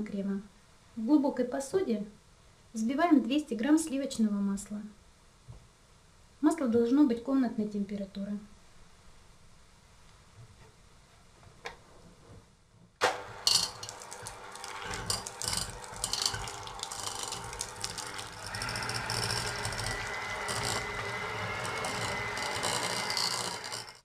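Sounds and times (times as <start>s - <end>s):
electric hand mixer motor: 13.2s - 24.0s
beaters scraping metal pot: 13.3s - 24.0s.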